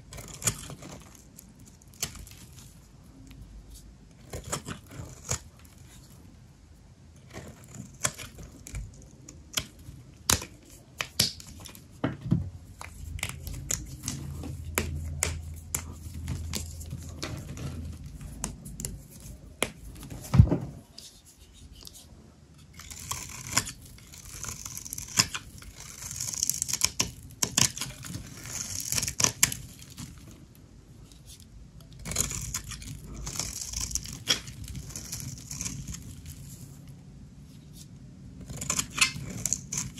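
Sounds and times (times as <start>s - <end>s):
knife scraping soap: 0.0s - 6.3s, 7.2s - 12.0s, 12.7s - 20.2s, 20.9s - 30.4s, 31.1s - 36.8s, 37.5s - 39.9s
knife cracking dry soap: 0.1s - 2.7s, 4.2s - 6.1s, 7.2s - 11.9s, 12.8s - 17.6s, 22.8s - 30.4s, 31.8s - 36.4s, 38.4s - 39.9s.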